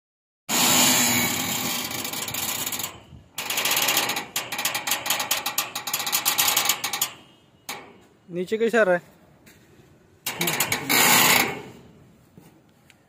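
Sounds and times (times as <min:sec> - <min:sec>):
loud steady mechanical noise: 0:00.5 - 0:08.0
fast mechanical clicking rattle: 0:01.2 - 0:07.8.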